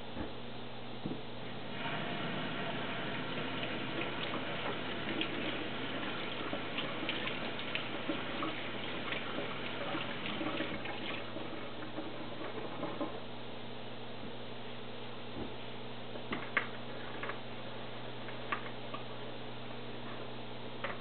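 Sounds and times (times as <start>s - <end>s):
faucet running into sink: 1.7s - 13.1s.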